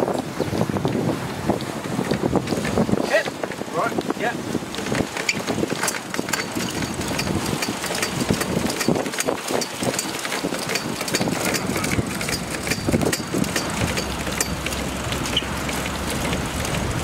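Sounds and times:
winch pawls clicking: 0:04.7 - 0:16.9.

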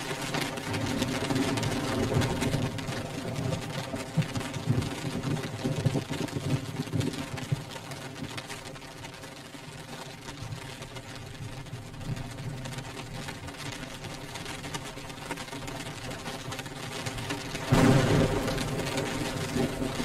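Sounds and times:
rain patter on window glass: 0:00.0 - 0:20.0
low rumble: 0:17.6 - 0:20.0.

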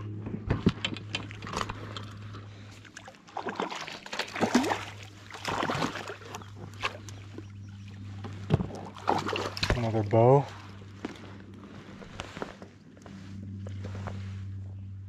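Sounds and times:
steady low hum: 0:00.0 - 0:15.0
fish splashing in water: 0:02.7 - 0:08.1, 0:08.7 - 0:09.9.

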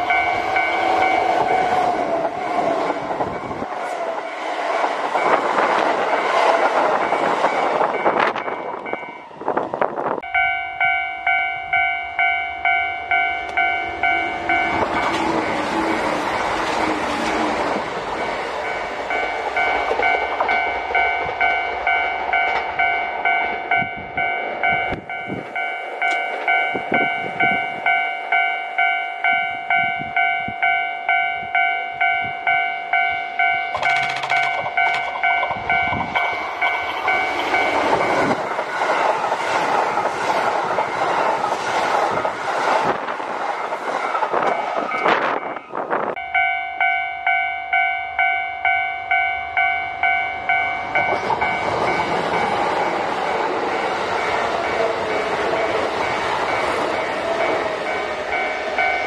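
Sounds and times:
level crossing bell ringing: 0:00.0 - 0:01.8, 0:10.2 - 0:15.2, 0:18.6 - 0:38.3, 0:46.2 - 0:55.0, 0:56.5 - 0:59.0
electric train passing: 0:00.0 - 0:59.0.

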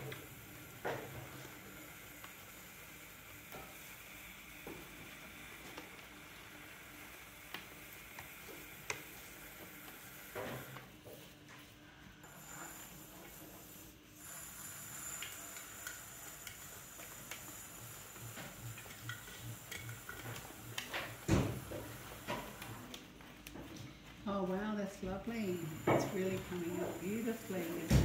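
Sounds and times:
tool scraping clay: 0:12.2 - 0:23.0, 0:25.3 - 0:28.0.

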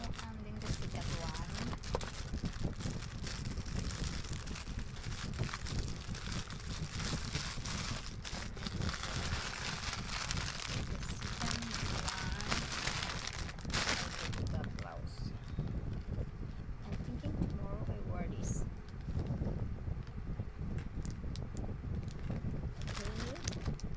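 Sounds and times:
plastic packaging crinkling: 0:00.0 - 0:15.0, 0:22.0 - 0:23.9.

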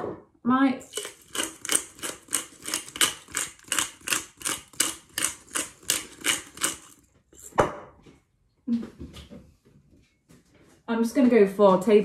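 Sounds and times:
pepper mill grinding: 0:00.8 - 0:07.5.

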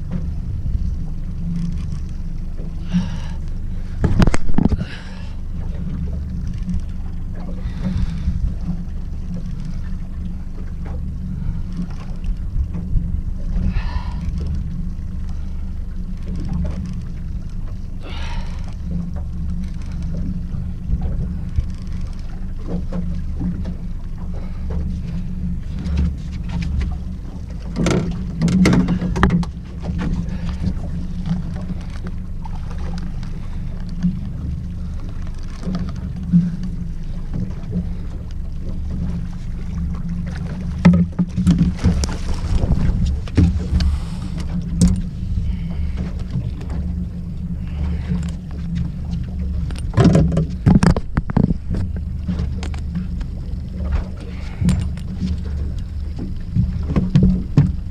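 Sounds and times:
knocks and clatter in boat: 0:00.0 - 0:57.9
outboard motor idling: 0:00.0 - 0:57.9.

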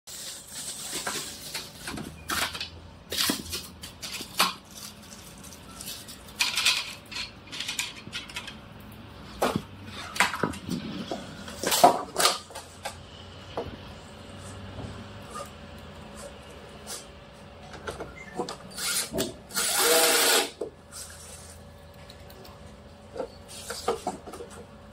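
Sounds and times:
plastic film rustling: 0:00.1 - 0:02.5, 0:03.1 - 0:06.7.

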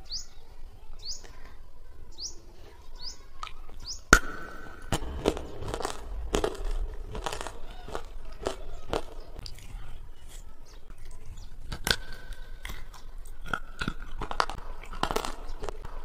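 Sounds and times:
bird-like chirps: 0:00.0 - 0:04.9
biting and chewing fruit: 0:03.3 - 0:16.0.

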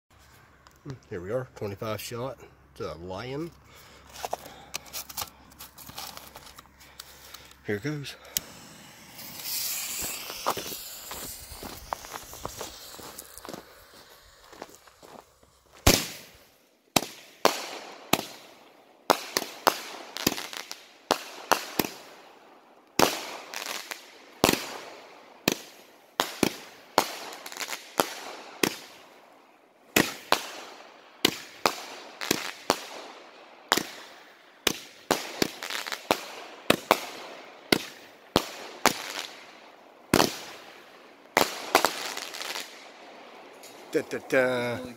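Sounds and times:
firework shots and bursts: 0:08.3 - 0:14.4, 0:15.8 - 0:22.3, 0:23.0 - 0:29.2, 0:29.9 - 0:43.2.

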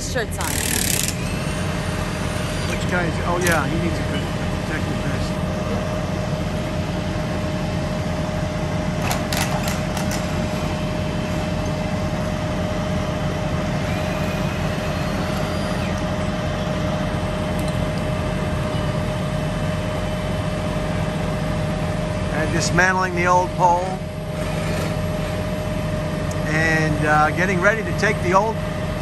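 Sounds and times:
truck engines idling: 0:00.0 - 0:29.0.

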